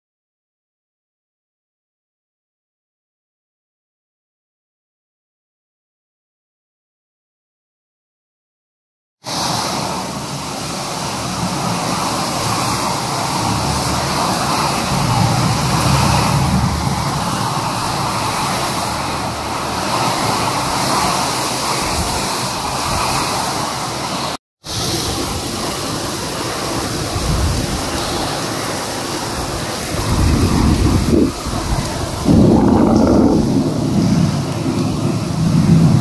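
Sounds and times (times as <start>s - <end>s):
heavy rain pouring: 9.2s - 36.0s
strong wind: 9.3s - 36.0s.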